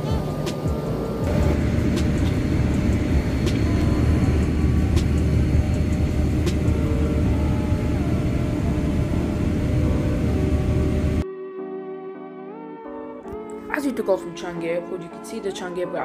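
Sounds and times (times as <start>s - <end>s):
airplane cabin engine rumble: 0.0s - 11.2s.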